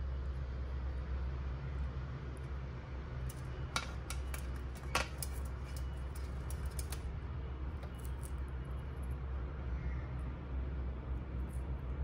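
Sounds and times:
bird claws tapping on metal tray: 0:03.3 - 0:07.0.

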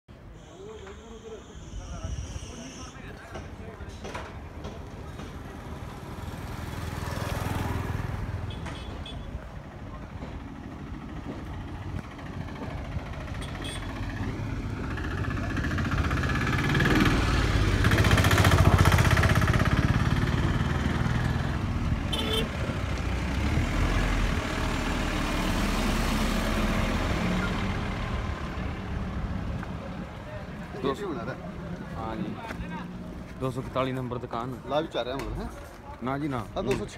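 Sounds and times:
road and traffic noise: 0:00.1 - 0:36.9
motorbike engine running: 0:11.2 - 0:21.1.

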